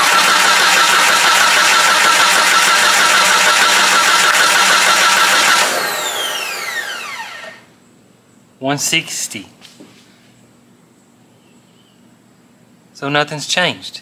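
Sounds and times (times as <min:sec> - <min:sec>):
starter motor cranking engine: 0:00.0 - 0:07.7.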